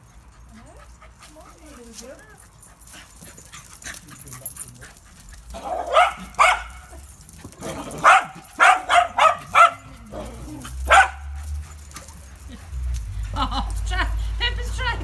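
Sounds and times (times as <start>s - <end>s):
small dog barking: 5.6s - 6.9s, 8.0s - 10.2s, 10.9s - 11.4s.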